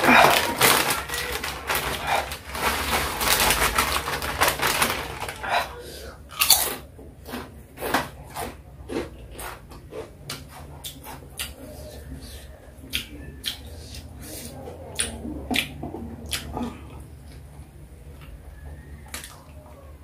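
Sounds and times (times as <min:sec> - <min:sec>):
chips pouring out: 0:00.0 - 0:05.6
chip bag crinkling: 0:00.0 - 0:08.6.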